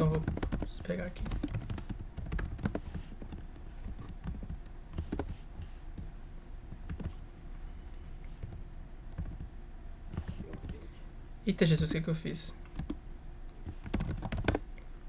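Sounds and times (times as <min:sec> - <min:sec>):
computer keyboard typing: 0:00.0 - 0:06.1, 0:06.7 - 0:07.2, 0:07.9 - 0:09.5, 0:12.6 - 0:13.0, 0:13.6 - 0:14.7.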